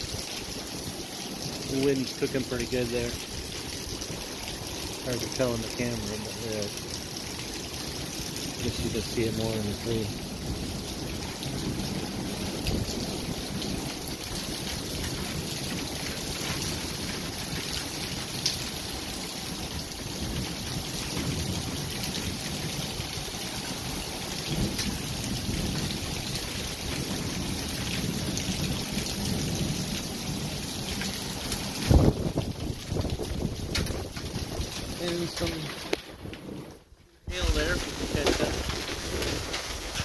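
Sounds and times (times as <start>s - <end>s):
rain hissing: 0.0s - 40.0s
wind buffeting microphone: 8.6s - 17.6s, 31.4s - 40.0s.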